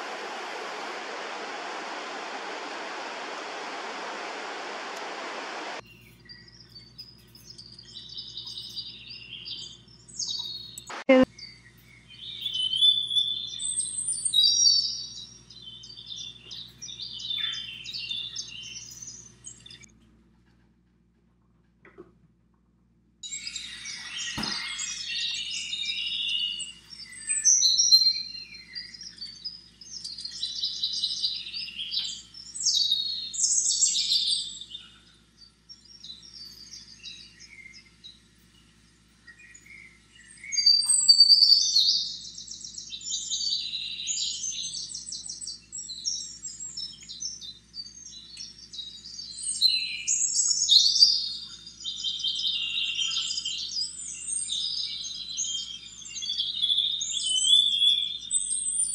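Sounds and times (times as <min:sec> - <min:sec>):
songbirds chirping and singing: 0:05.8 - 0:19.9, 0:23.2 - 0:58.9.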